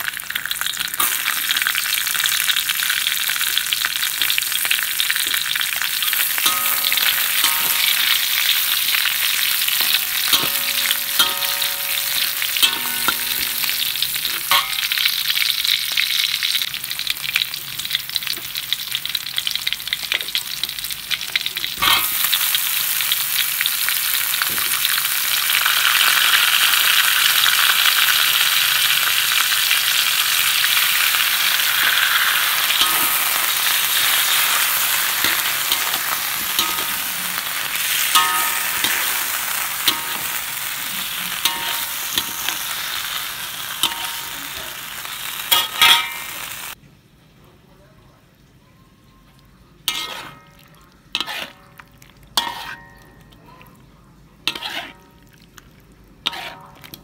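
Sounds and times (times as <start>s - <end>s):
vegetables sizzling in hot oil: 0.0s - 46.8s, 49.9s - 53.2s, 54.4s - 55.2s, 55.8s - 57.0s
stirring clicks and scrapes on metal: 49.9s - 50.6s, 54.5s - 55.1s.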